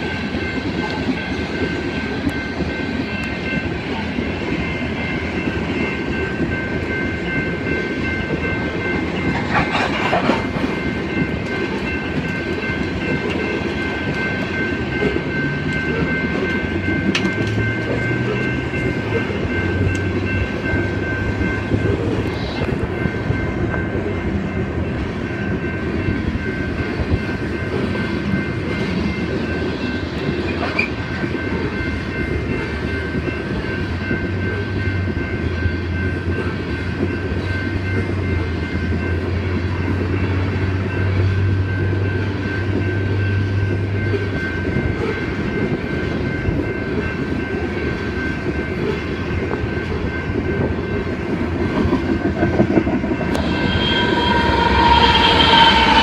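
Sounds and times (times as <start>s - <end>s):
wheels clickety-clack: 0.0s - 23.8s, 27.0s - 53.5s
train wheels rumbling on rails: 0.0s - 56.0s
thin high tones: 53.0s - 56.0s.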